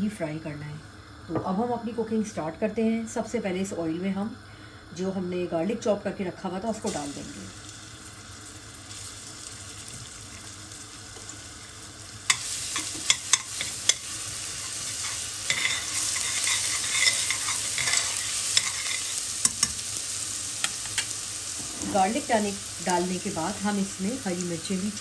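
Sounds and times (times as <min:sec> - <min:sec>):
garlic sizzling in hot oil: 0:06.4 - 0:25.0.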